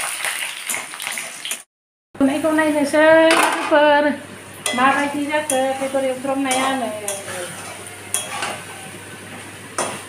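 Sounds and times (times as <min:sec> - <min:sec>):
meat sizzling: 0:00.0 - 0:01.7
spatula clinking against pan: 0:04.6 - 0:08.8
spatula scraping pan: 0:04.7 - 0:09.1.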